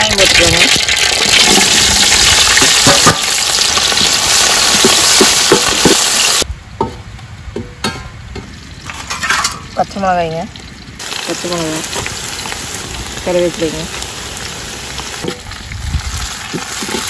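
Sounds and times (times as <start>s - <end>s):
onions sizzling in hot oil: 0.0s - 6.5s, 9.6s - 17.0s
metal ladle scraping pot: 7.8s - 9.8s, 16.4s - 17.0s.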